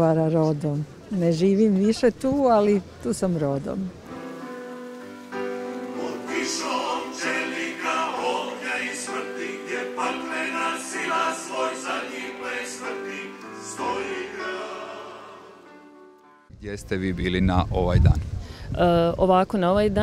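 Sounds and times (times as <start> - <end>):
held accompanying notes: 4.0 - 16.4
choir singing: 5.9 - 15.9.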